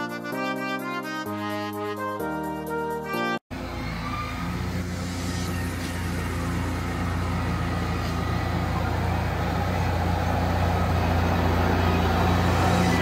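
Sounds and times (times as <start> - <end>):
tractor diesel engine running: 3.5 - 13.0.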